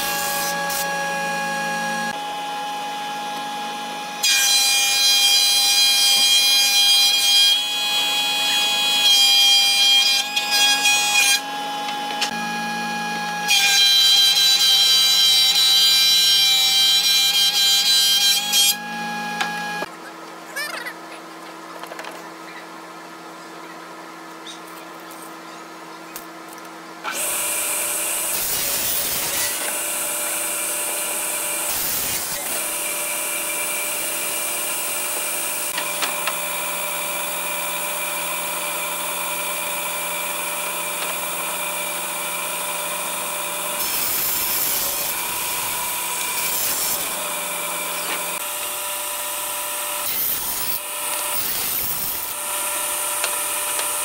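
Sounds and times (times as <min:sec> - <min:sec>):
hissing wood cut: 0:27.0 - 0:54.0.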